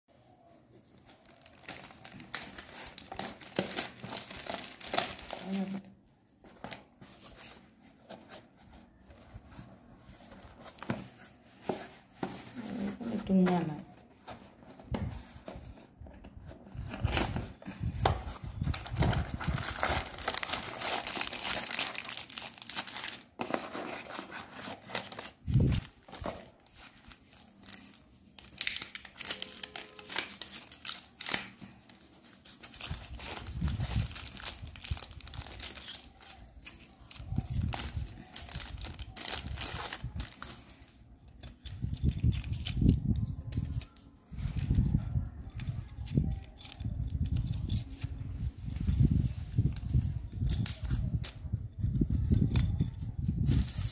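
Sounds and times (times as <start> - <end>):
plastic wrap crinkling: 0.8 - 7.7, 8.3 - 44.9
cardboard box opened: 6.4 - 27.4.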